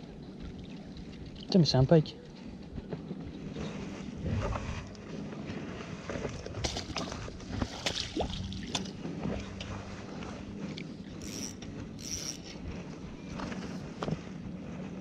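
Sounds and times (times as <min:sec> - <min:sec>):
water splashing and sloshing: 0:00.0 - 0:01.8, 0:02.9 - 0:15.0
fishing rod and reel clicks: 0:10.7 - 0:13.8.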